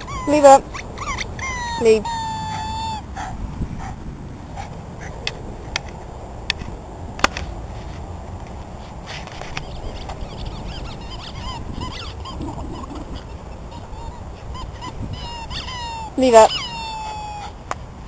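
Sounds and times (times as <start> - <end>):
squeaky dog toy squeak: 0.0 - 3.0, 10.7 - 12.4, 13.1 - 17.6.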